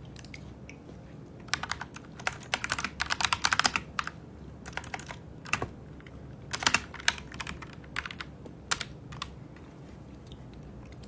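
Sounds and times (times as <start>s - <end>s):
keyboard typing clicks: 1.5s - 9.4s.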